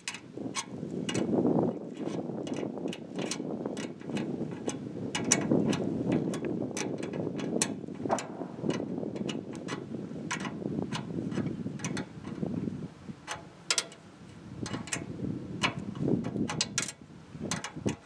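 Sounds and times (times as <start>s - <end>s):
small metal parts clicking: 2.0s - 10.5s, 13.3s - 14.0s, 14.6s - 15.0s, 16.4s - 18.0s.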